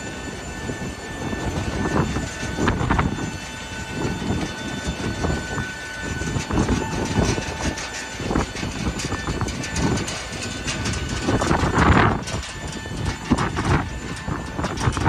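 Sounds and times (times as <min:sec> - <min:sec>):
steady machinery whine: 0:00.0 - 0:15.0
uneven low rumbling: 0:00.0 - 0:15.0.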